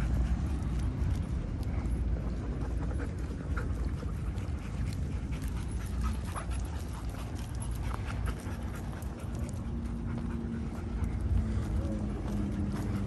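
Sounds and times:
dog panting: 0:00.0 - 0:13.0.

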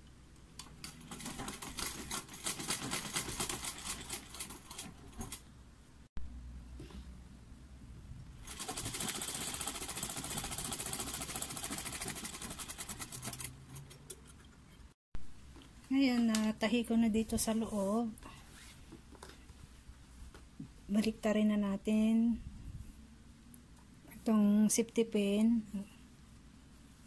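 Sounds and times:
sewing machine stitching: 0:00.9 - 0:05.4, 0:08.4 - 0:14.0.

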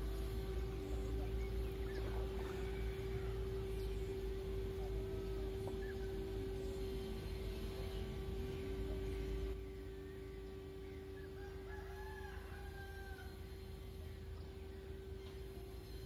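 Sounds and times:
steady low hum: 0:00.0 - 0:16.0
rooster crowing: 0:01.9 - 0:04.0, 0:11.1 - 0:13.8.

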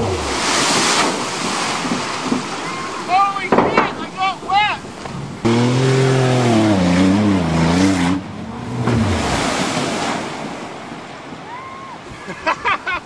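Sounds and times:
van engine at full throttle: 0:00.0 - 0:00.8, 0:05.4 - 0:10.0
rush of water noise: 0:00.0 - 0:13.0.

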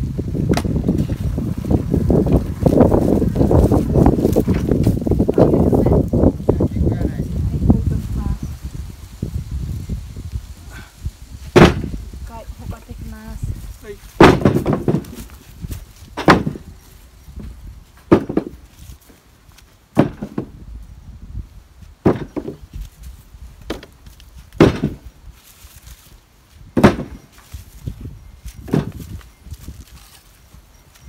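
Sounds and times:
wood being chopped: 0:00.5 - 0:01.2, 0:11.5 - 0:12.0, 0:14.2 - 0:15.4, 0:16.1 - 0:16.7, 0:18.0 - 0:18.7, 0:19.9 - 0:20.6, 0:22.0 - 0:22.7, 0:23.6 - 0:25.1, 0:26.8 - 0:27.4, 0:28.6 - 0:29.2.

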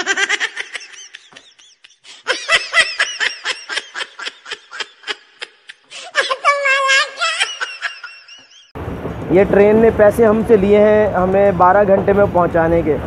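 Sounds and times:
high-pitched giggling: 0:00.0 - 0:08.7.

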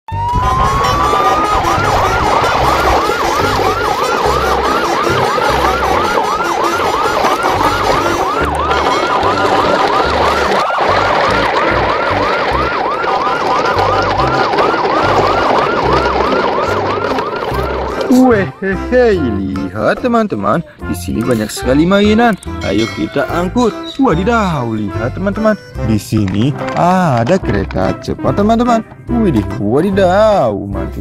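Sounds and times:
yelping siren wail: 0:00.1 - 0:18.6.

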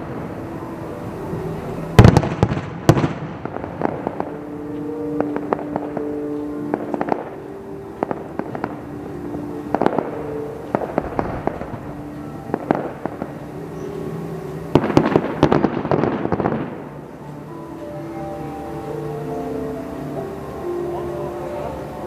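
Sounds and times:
music: 0:00.0 - 0:22.0
fireworks bangs and pops: 0:02.0 - 0:07.4, 0:14.7 - 0:17.0.

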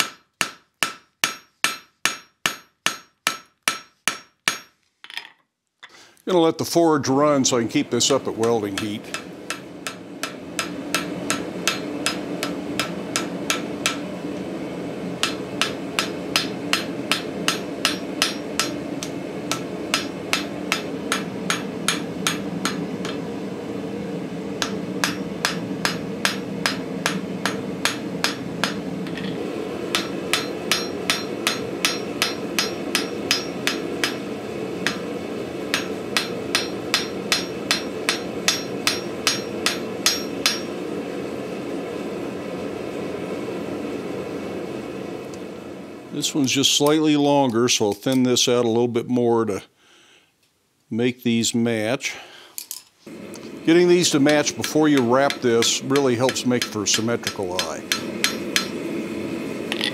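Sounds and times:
hammer ringing on anvil: 0:00.0 - 0:04.7, 0:08.4 - 0:14.0, 0:15.2 - 0:18.8, 0:19.5 - 0:23.2, 0:24.6 - 0:29.3, 0:29.9 - 0:34.2, 0:35.7 - 0:40.8, 0:54.3 - 0:58.8.

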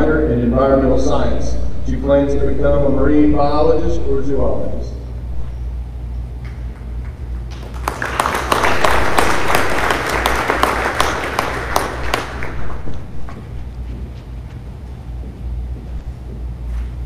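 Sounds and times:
audience applause: 0:07.5 - 0:13.1.

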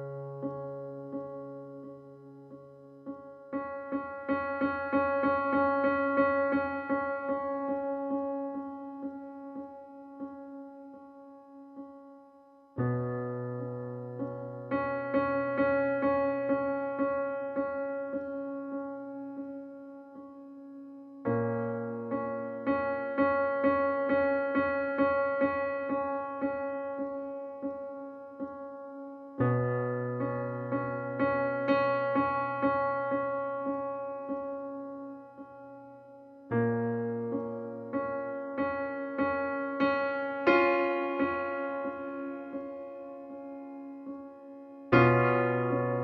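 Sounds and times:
solo piano music: 0:00.0 - 0:46.0.

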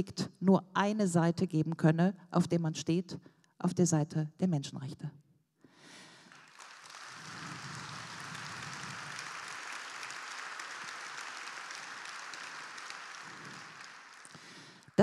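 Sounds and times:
audience applauding: 0:05.9 - 0:14.9.

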